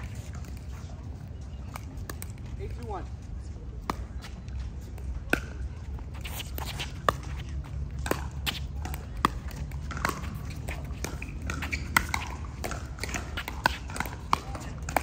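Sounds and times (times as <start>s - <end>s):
paddles hitting plastic ball: 7.9s - 15.0s.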